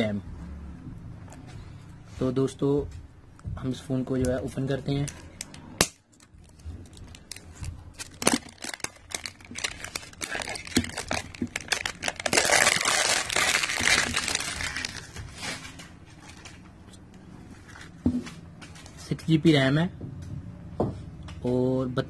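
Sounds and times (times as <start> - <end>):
crinkling and tearing: 5.0 - 16.6.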